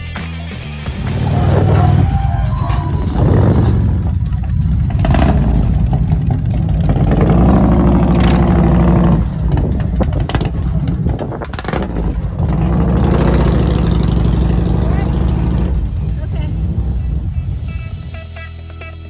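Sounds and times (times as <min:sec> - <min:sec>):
motorcycle engines revving past: 0:00.9 - 0:18.4.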